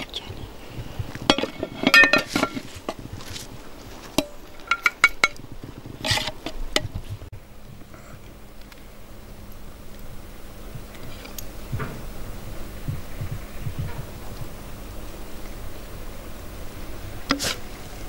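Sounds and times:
plates and pot clinking: 0:01.2 - 0:03.4, 0:04.1 - 0:05.4.

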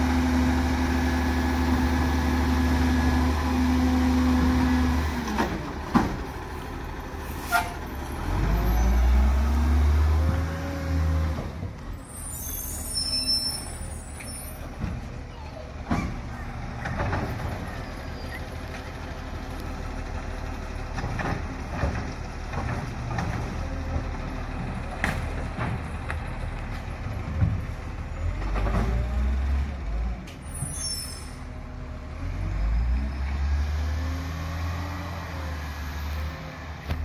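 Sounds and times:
diesel truck engine running: 0:00.0 - 0:10.5, 0:14.6 - 0:30.3.

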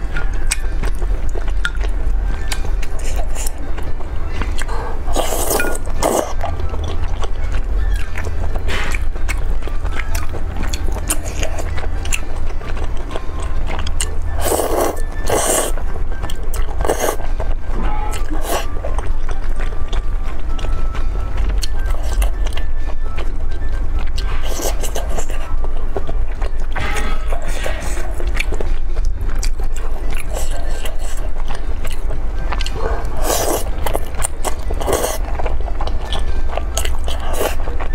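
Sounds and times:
soft chewing and mouth clicks: 0:00.0 - 0:37.9
steady low hum: 0:00.0 - 0:37.9
loud wet noodle slurps: 0:14.4 - 0:15.8.

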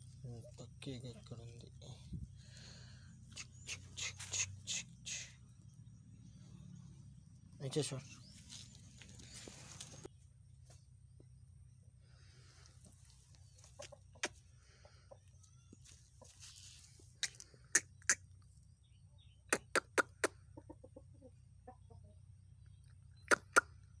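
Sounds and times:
rooster clucking: 0:13.6 - 0:15.2, 0:19.5 - 0:22.1.

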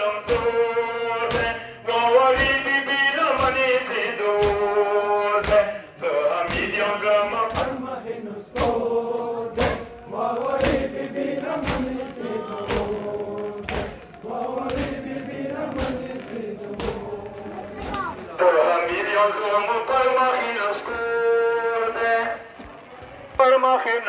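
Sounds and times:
men chanting: 0:00.0 - 0:22.5
chest-beating slaps: 0:00.2 - 0:01.6, 0:02.3 - 0:05.8, 0:06.4 - 0:06.8, 0:07.4 - 0:07.9, 0:08.5 - 0:19.2, 0:20.9 - 0:21.2.

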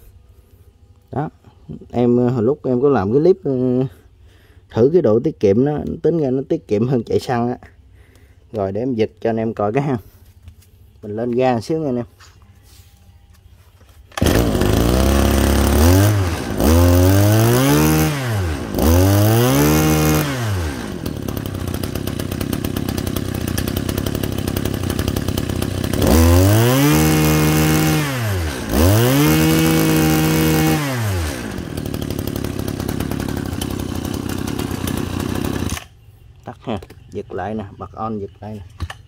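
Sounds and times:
brushcutter engine idling and revving: 0:14.1 - 0:39.0.

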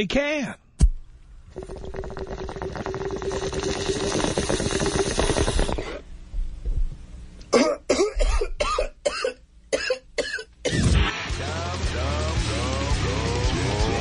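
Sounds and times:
water bubbling through a bong: 0:01.4 - 0:06.0
person coughing harshly: 0:07.5 - 0:10.9.

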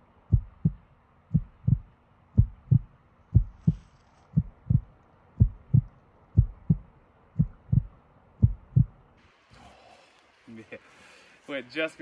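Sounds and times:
heartbeat thumps: 0:00.2 - 0:09.1.

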